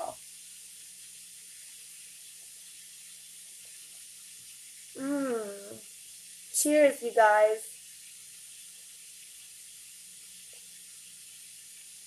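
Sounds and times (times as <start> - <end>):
background hiss: 0.0 - 12.0
short voiced sound: 5.0 - 5.8.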